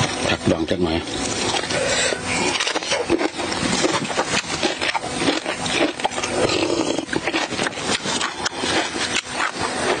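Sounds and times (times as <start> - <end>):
wet chewing: 1.1 - 10.0
slurping soup: 1.4 - 10.0.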